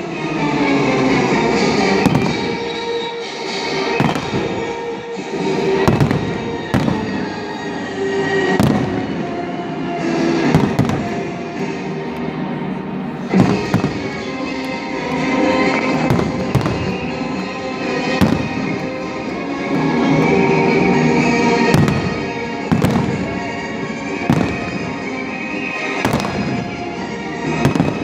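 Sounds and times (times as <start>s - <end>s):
fireworks bursting with booms: 1.9s - 2.8s, 3.8s - 7.8s, 8.4s - 9.7s, 10.4s - 11.4s, 13.3s - 14.8s, 15.8s - 19.4s, 21.4s - 28.0s.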